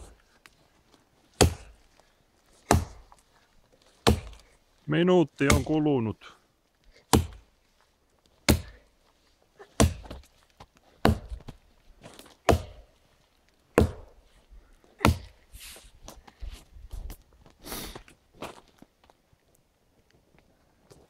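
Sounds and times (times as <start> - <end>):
wood crunching: 0.0 - 15.4
axe chopping tree trunk: 1.4 - 1.8, 2.6 - 3.1, 4.0 - 4.5, 5.4 - 5.7, 7.1 - 7.5, 8.4 - 8.8, 9.6 - 10.3, 11.0 - 11.5, 12.2 - 12.9, 13.7 - 14.2, 15.0 - 15.4.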